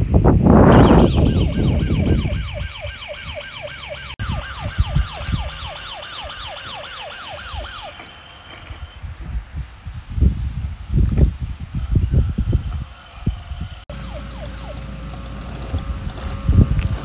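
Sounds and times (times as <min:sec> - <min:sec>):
steady electronic beep: 0:00.6 - 0:09.0
electronic toy siren wailing: 0:00.7 - 0:09.1, 0:11.9 - 0:15.8.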